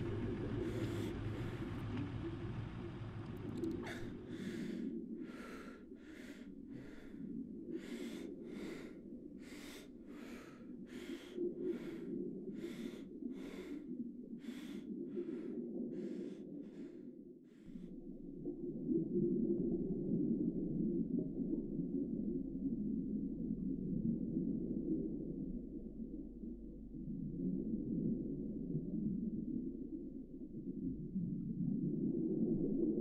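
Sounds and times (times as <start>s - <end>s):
steady low drone: 0.0s - 17.9s
man breathing heavily: 3.8s - 17.7s.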